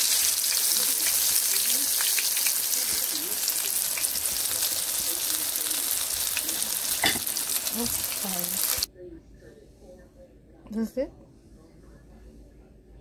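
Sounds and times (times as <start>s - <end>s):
food frying in hot oil: 0.0s - 8.9s.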